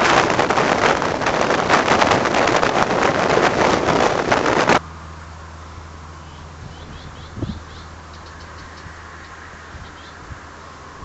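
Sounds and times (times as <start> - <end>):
wind buffeting microphone: 0.0 - 4.8, 6.4 - 11.0
low steady hum: 0.0 - 11.0.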